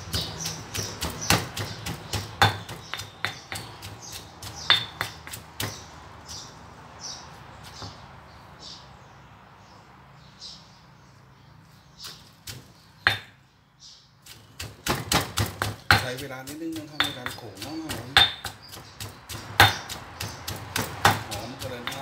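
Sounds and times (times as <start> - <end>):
pestle pounding in stone mortar: 0.0 - 6.0, 12.0 - 13.4, 14.2 - 22.0.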